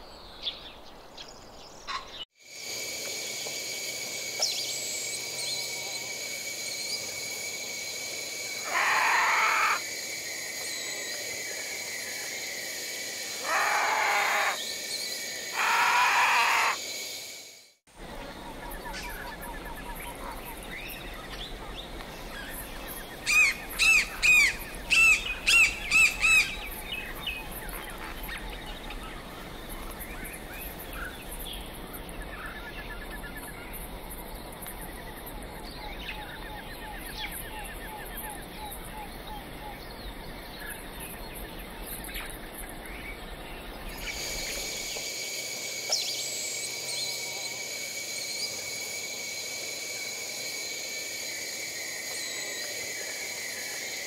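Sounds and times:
bird chorus: 8.5s - 9.8s, 13.2s - 16.8s, 18.0s - 45.0s
loud clear bird call notes: 8.6s - 9.8s, 18.9s - 28.2s.

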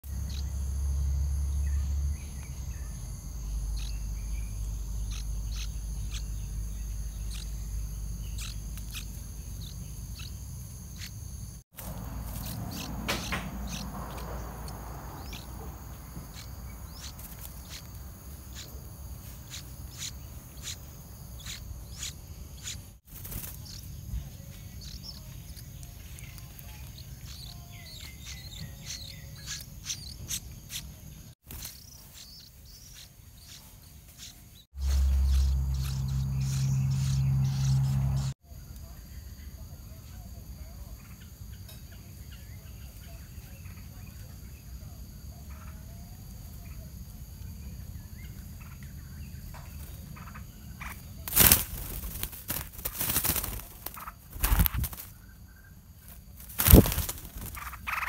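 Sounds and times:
insect drone: 0.0s - 58.0s
low rumble: 34.8s - 38.4s.

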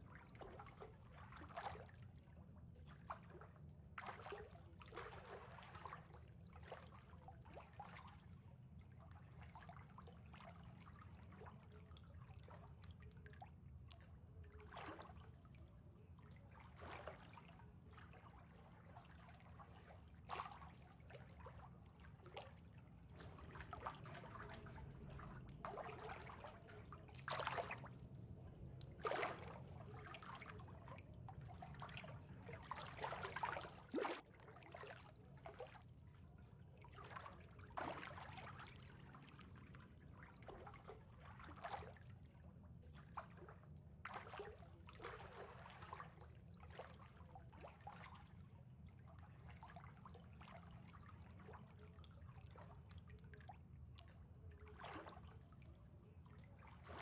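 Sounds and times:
water trickling and lapping: 0.0s - 57.0s
low steady hum: 17.4s - 41.4s.

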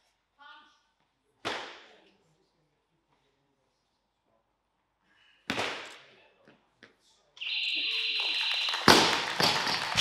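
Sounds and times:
electronic beep: 7.4s - 10.0s.

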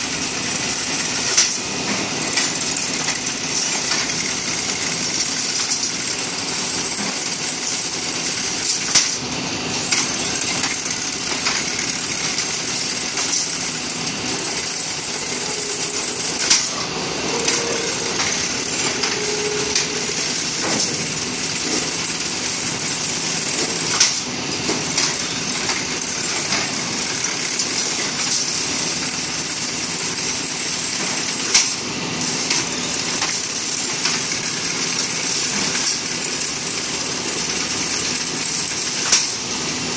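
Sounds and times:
rebar bending machine running: 0.0s - 39.9s
sharp mechanical clack: 39.0s - 39.4s.

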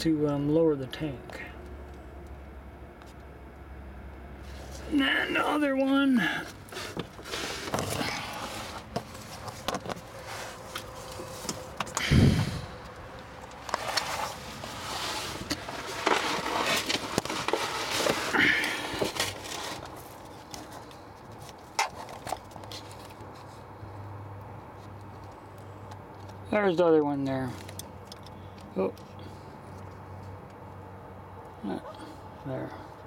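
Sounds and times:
rustling and scraping under car: 4.4s - 30.8s.

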